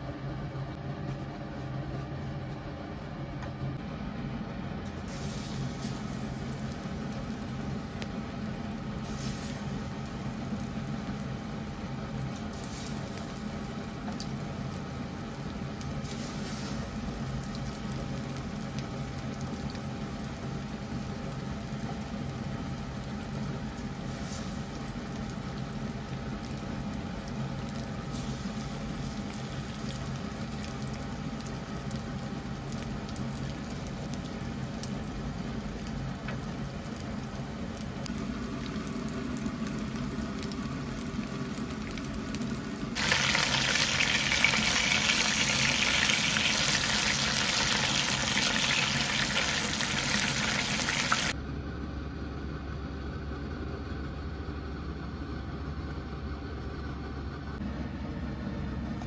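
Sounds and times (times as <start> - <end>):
low steady hum: 0.0 - 59.0
chicken frying in oil: 4.9 - 51.4.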